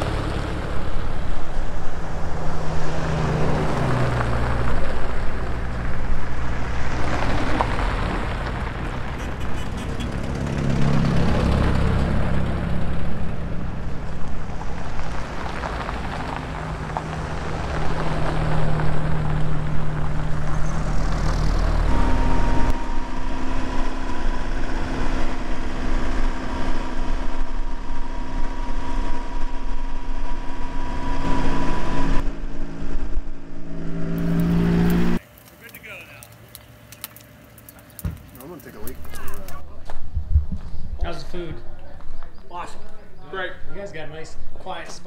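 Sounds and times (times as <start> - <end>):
jeeps driving past on gravel: 0.0 - 27.4, 34.2 - 40.0
jeep engine drone: 0.0 - 35.2
steady whine: 12.1 - 35.8.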